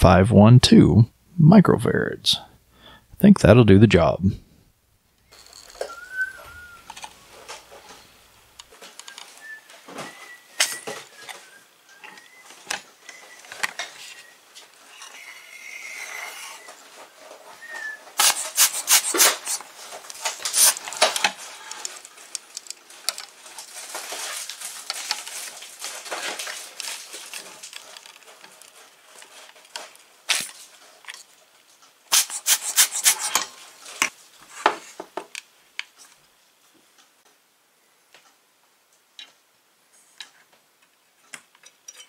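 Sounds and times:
metal scraping and rubbing: 0:13.2 - 0:21.9, 0:32.1 - 0:33.6.

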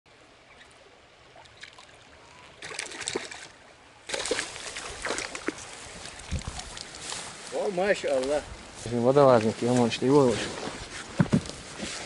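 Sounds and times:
river water flowing: 0:00.1 - 0:12.0
small clicks and gurgles: 0:02.6 - 0:07.2.

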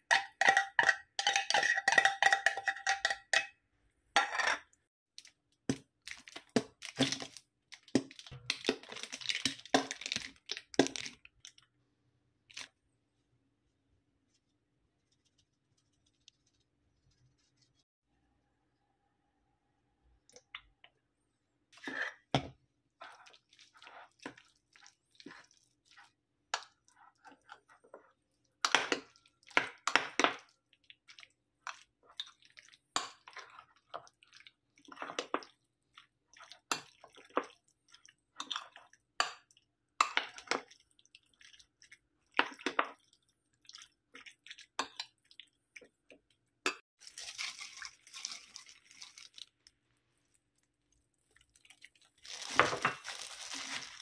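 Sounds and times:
spoon mixing in a ceramic bowl: 0:00.0 - 0:03.6, 0:21.8 - 0:48.0.

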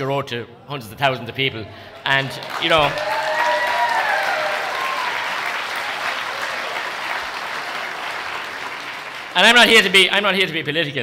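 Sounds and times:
audience applauding: 0:02.0 - 0:10.0.

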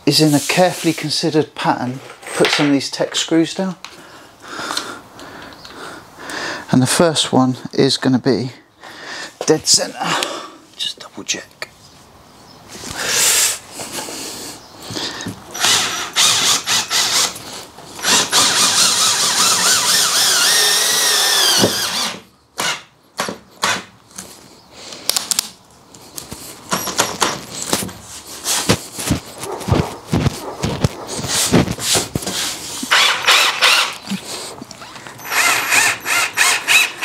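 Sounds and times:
cordless drill driving screws: 0:15.5 - 0:17.4, 0:18.0 - 0:22.8, 0:32.9 - 0:34.1, 0:34.8 - 0:37.0.

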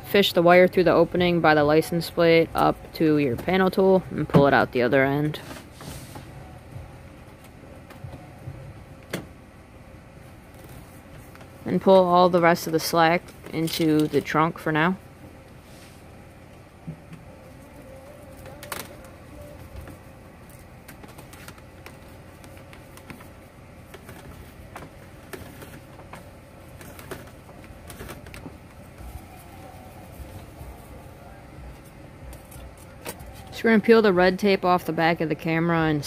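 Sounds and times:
low background hum: 0:00.0 - 0:36.0
clicks and rustles of handling: 0:16.5 - 0:33.6.

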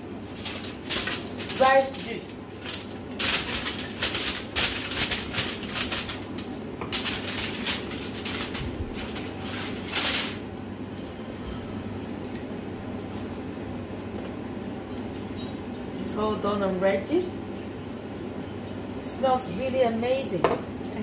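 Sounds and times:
steady low hum: 0:00.0 - 0:21.0
aluminium foil crinkling: 0:00.2 - 0:10.5.

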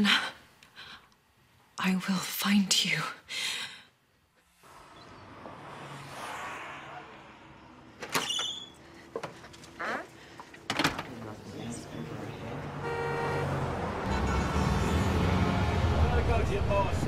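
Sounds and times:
door whoosh: 0:04.6 - 0:08.8.

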